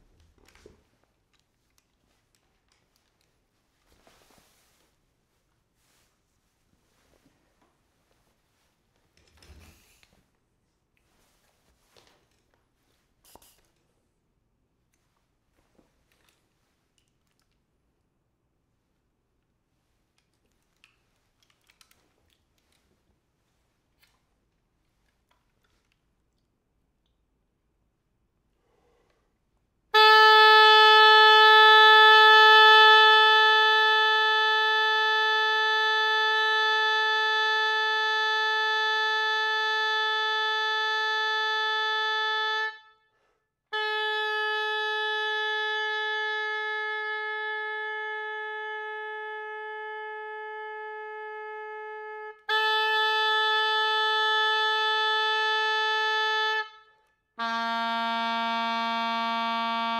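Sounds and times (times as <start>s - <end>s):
oboe long held tones: 30.0s - 43.0s, 43.7s - 59.9s.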